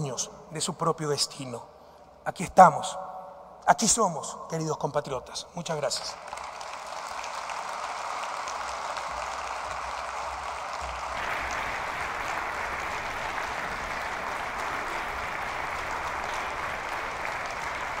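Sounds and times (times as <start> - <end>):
audience applauding: 6.0 - 18.0.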